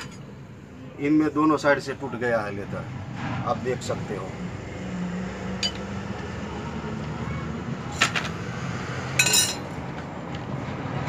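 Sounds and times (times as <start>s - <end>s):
metal plates clinking: 9.2s - 9.7s.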